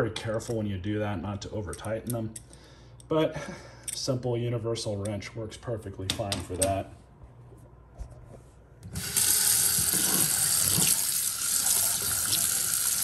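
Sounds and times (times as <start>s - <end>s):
water splashing into steel sink: 9.0s - 13.0s.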